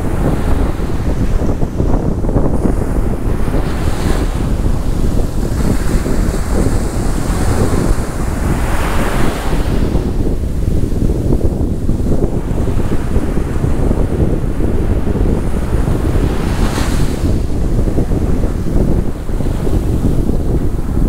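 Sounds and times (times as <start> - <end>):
waves washing onto beach: 0.0 - 21.0
wind buffeting microphone: 0.0 - 21.0.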